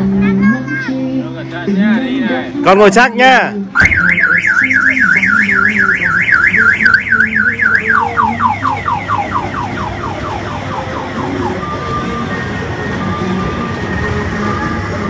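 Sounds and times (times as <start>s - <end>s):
electronic siren warble: 3.8s - 13.8s.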